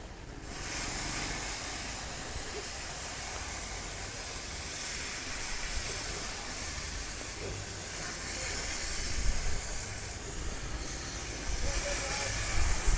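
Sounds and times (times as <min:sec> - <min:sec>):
steam locomotive venting steam: 0:00.0 - 0:12.9.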